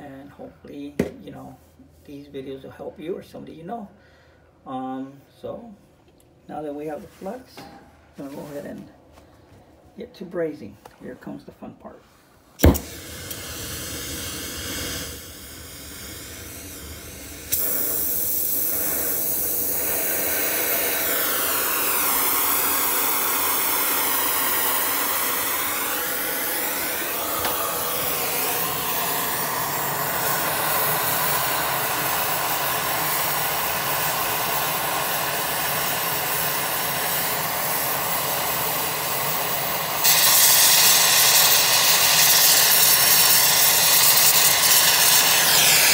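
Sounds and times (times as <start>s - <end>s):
torch igniter click: 12.6s - 20.0s, 27.4s - 31.6s
gas flame hissing: 12.6s - 45.9s.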